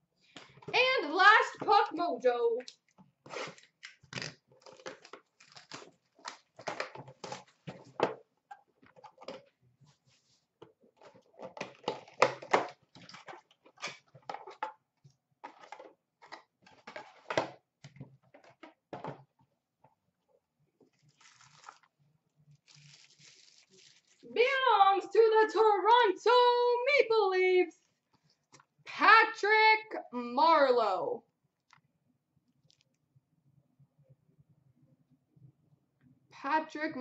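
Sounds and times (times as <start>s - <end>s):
packaging crinkling and tearing: 3.3s - 7.8s, 21.0s - 21.9s, 22.6s - 24.3s.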